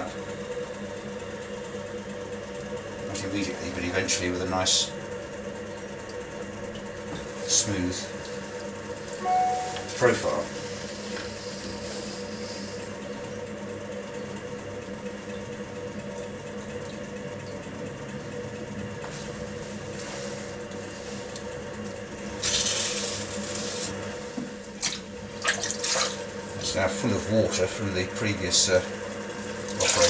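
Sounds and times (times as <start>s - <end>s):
potter's wheel humming: 0.0s - 30.0s
wet splashy rustle: 24.8s - 26.2s.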